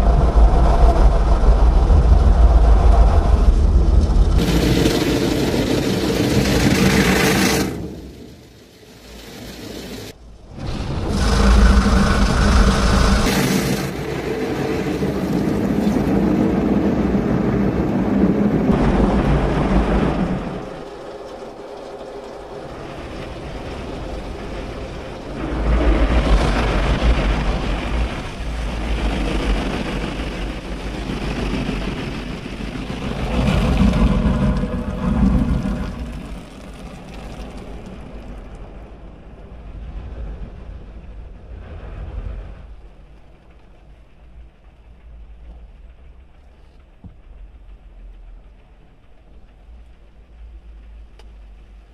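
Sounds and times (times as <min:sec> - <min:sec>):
car wash machinery passing: 0:01.3 - 0:39.4
car wash water spray: 0:04.3 - 0:16.4.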